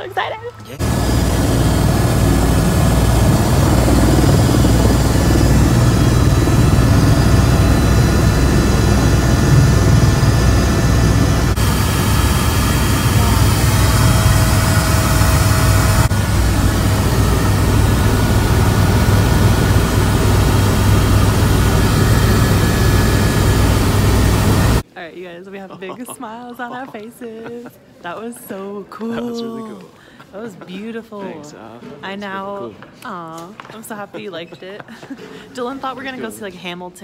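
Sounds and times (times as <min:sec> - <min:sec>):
helicopter engine and rotors: 0:00.6 - 0:24.8.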